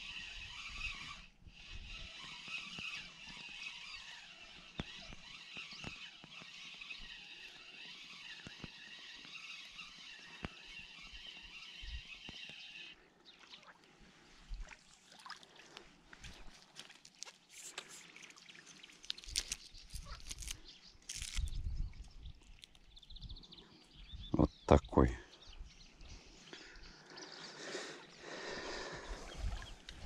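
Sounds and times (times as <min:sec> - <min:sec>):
fishing reel whirring: 0:00.0 - 0:13.0
rustling through weeds: 0:16.3 - 0:21.6.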